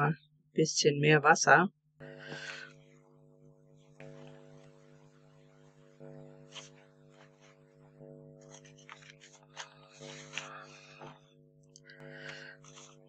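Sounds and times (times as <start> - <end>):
steady low hum: 0.0 - 13.0
brush and paper clicks: 8.4 - 10.6, 12.3 - 13.0.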